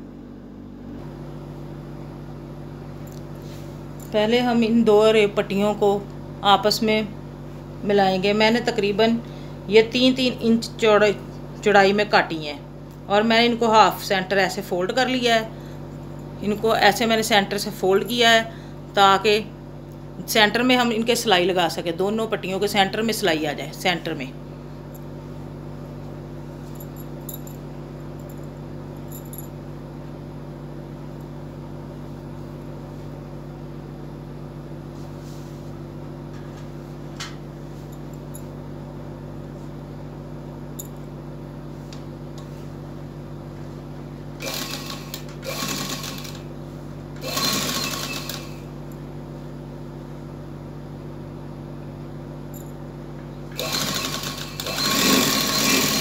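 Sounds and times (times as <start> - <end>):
steady low hum: 0.0 - 56.0
sewing machine stitching: 44.4 - 46.5, 47.2 - 48.7, 53.6 - 56.0.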